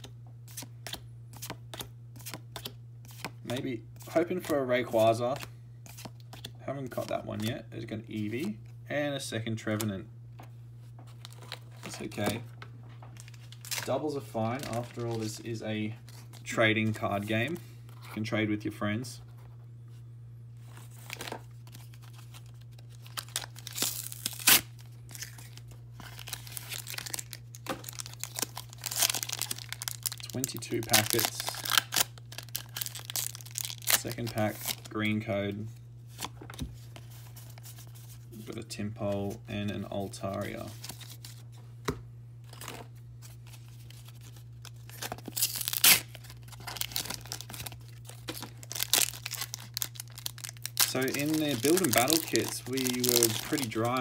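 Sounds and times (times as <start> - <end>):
plastic packaging crinkling and tearing: 11.1 - 16.5, 20.6 - 35.2, 42.4 - 54.0.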